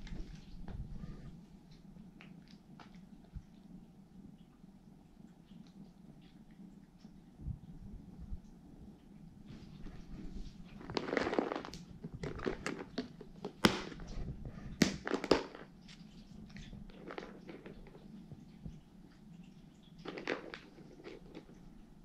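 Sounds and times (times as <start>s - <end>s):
cats crunching dry treats: 10.6s - 21.9s.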